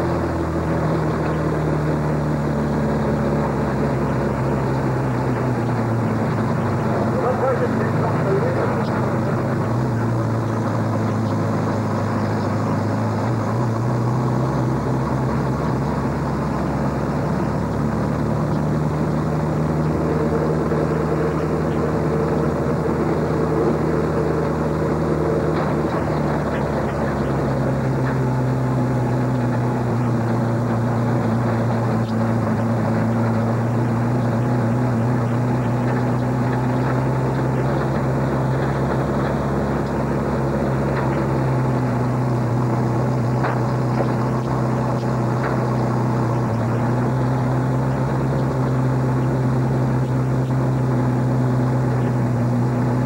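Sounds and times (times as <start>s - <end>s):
truck engine droning: 0.0s - 53.0s.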